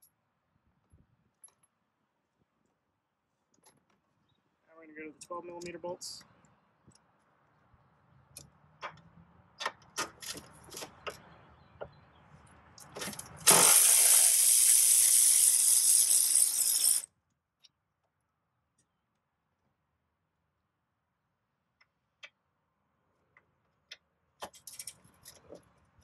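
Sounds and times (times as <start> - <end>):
electric ratchet running: 13.4 - 17.1.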